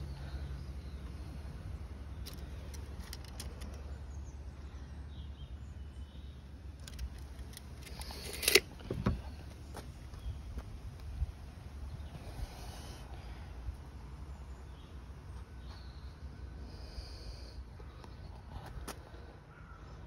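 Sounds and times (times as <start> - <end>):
low background rumble: 0.0 - 20.0
tape measure rattling and snapping shut: 6.8 - 9.2.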